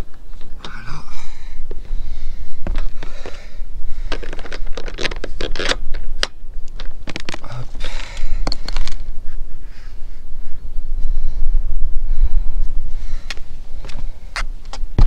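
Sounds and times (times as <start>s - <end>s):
low wind rumble on microphone: 0.0s - 15.0s
plastic bracket clicking and scraping: 4.1s - 9.0s.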